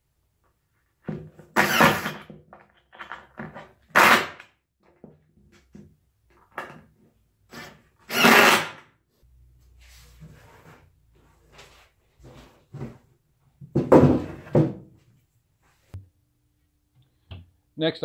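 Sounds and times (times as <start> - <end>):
cordless drill driving screws: 1.6 - 2.3, 3.9 - 4.4, 7.5 - 8.8.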